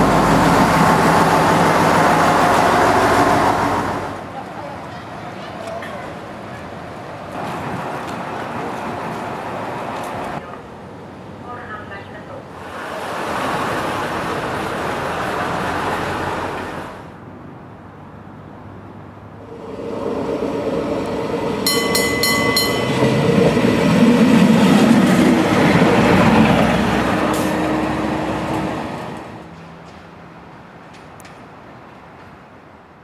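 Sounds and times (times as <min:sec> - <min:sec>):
train wheels rolling on rails: 0:00.0 - 0:10.5, 0:19.4 - 0:32.6
diesel railcar drone: 0:00.0 - 0:33.0
rapid ringing signal: 0:21.7 - 0:23.2.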